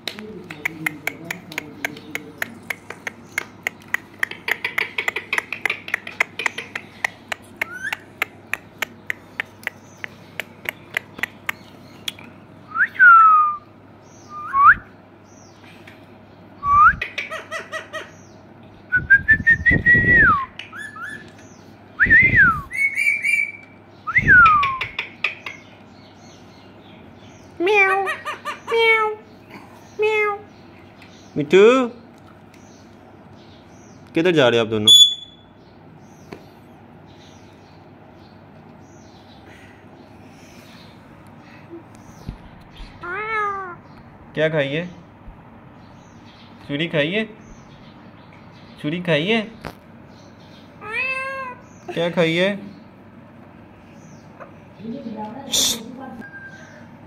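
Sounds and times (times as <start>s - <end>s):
parrot whistling: 19.0s - 21.3s, 22.0s - 24.9s, 34.9s - 35.4s.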